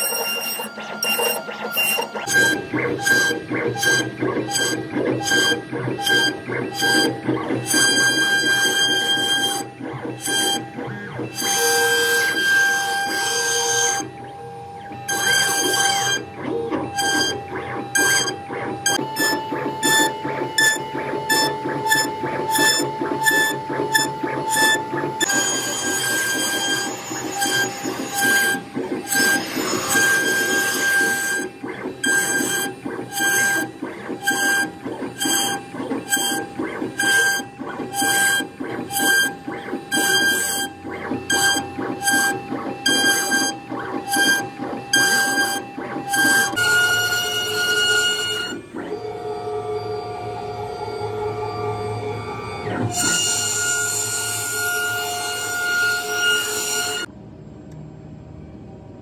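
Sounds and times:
router spindle whining: 0:00.0 - 0:57.1
router bit carving wood: 0:14.8 - 0:57.1.

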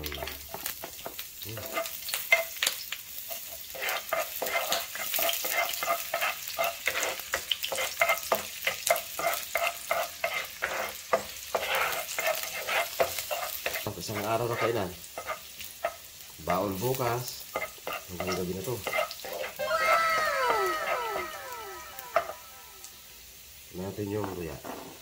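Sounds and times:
garlic sizzling in oil: 0:00.0 - 0:25.0
utensil scraping a pan: 0:00.2 - 0:02.7, 0:03.3 - 0:19.6.

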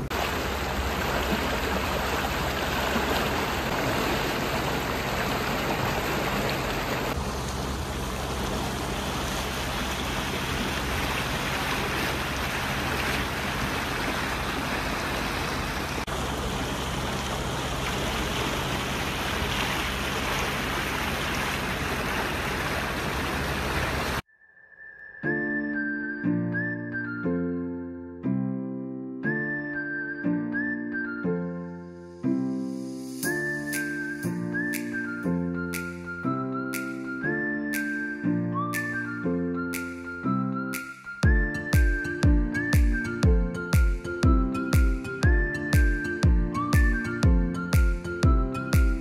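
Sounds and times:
low even hum: 0:00.0 - 0:24.2
water rushing: 0:00.0 - 0:24.2.

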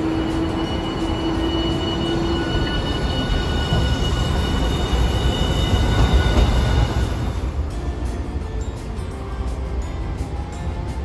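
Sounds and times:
tram high electric tones: 0:00.0 - 0:11.0
tram wheels rumbling on track: 0:00.0 - 0:11.0.

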